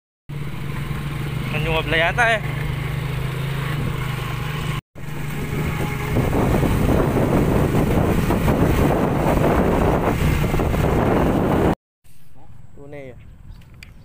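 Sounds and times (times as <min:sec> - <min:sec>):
motorcycle engine humming: 0:00.3 - 0:14.0
wind buffeting microphone: 0:05.2 - 0:11.8.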